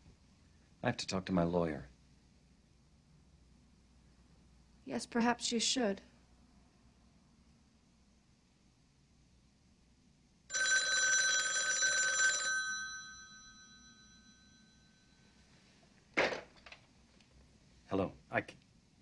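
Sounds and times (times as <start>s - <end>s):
telephone bell ringing: 10.5s - 15.2s.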